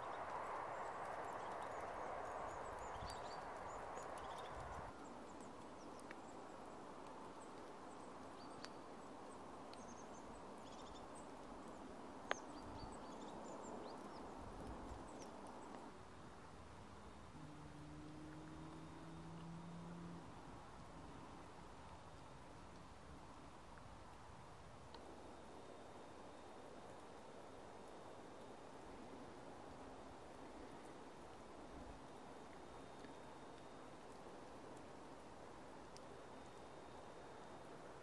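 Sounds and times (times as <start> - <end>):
small birds chirping: 0.0 - 15.9.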